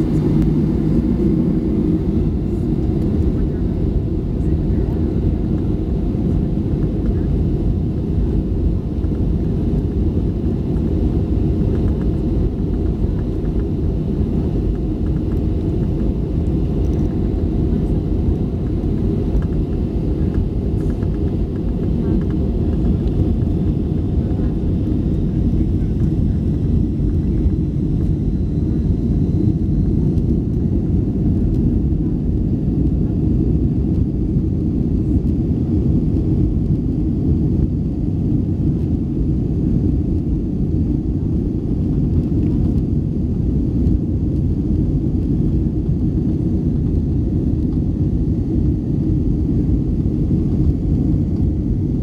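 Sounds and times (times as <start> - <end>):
jet engines rumbling in cabin: 0.0 - 52.0.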